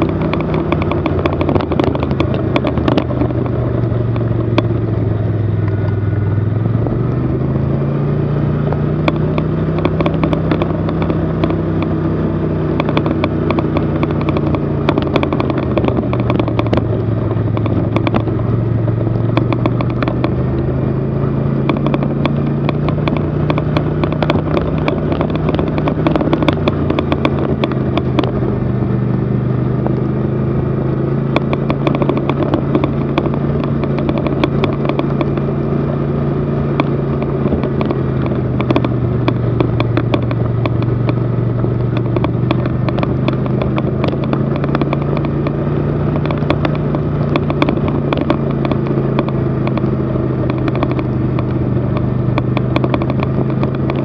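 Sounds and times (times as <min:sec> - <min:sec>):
rattling clatter: 0:00.0 - 0:04.8, 0:12.7 - 0:20.6, 0:21.5 - 0:28.8, 0:31.2 - 0:54.0
snowmobile engine running: 0:00.0 - 0:54.0.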